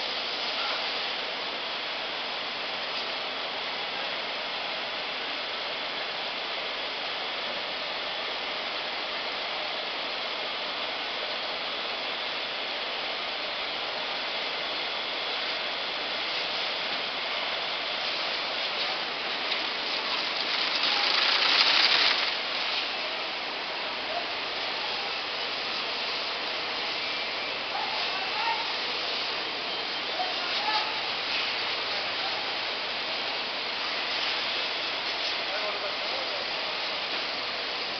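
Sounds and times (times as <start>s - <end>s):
braiding machines running: 12.5s - 37.9s.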